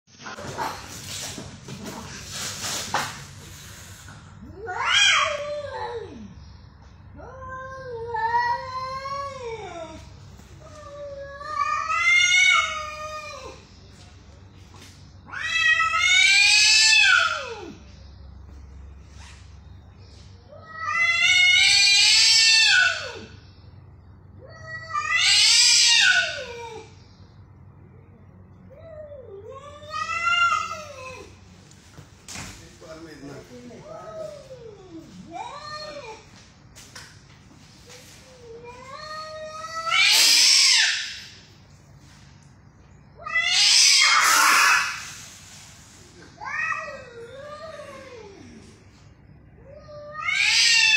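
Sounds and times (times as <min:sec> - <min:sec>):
cats yowling: 0:04.4 - 0:06.4, 0:07.1 - 0:13.7, 0:15.2 - 0:17.9, 0:20.4 - 0:23.4, 0:24.4 - 0:27.0, 0:28.7 - 0:31.4, 0:33.8 - 0:36.3, 0:38.2 - 0:41.5, 0:43.2 - 0:45.3, 0:46.1 - 0:48.8, 0:49.6 - 0:50.9.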